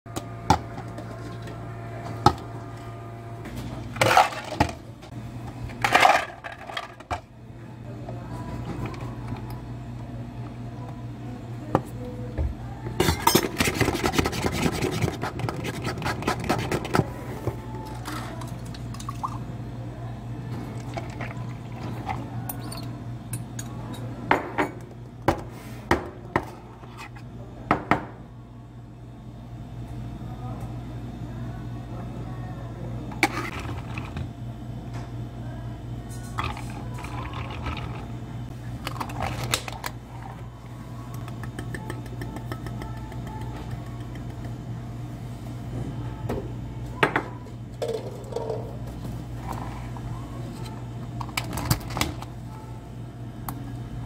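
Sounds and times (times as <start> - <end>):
steady low hum: 0.1 - 54.0
ice clinking in plastic cups: 17.8 - 19.4, 36.3 - 38.1.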